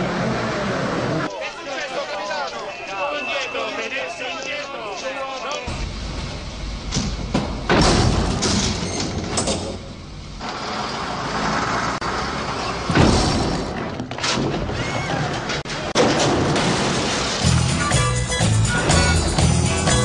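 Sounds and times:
vehicle noise: 0:00.0 - 0:01.3, 0:05.6 - 0:16.0
loud thuds: 0:06.9 - 0:10.0, 0:12.8 - 0:17.7.

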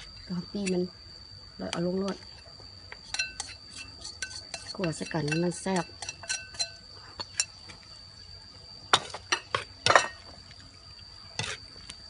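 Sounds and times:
spatula scraping steel wok: 0:03.0 - 0:07.4
spoon scraping ceramic bowl: 0:03.1 - 0:07.6.

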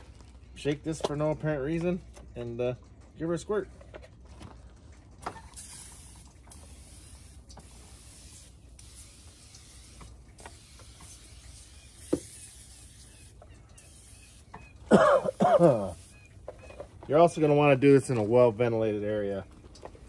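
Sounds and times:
aerosol can spraying: 0:05.4 - 0:14.6, 0:15.2 - 0:16.2.

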